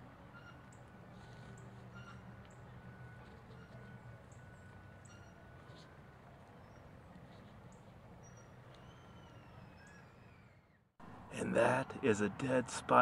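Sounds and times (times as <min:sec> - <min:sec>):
faint small bird chirps: 0:07.7 - 0:10.8.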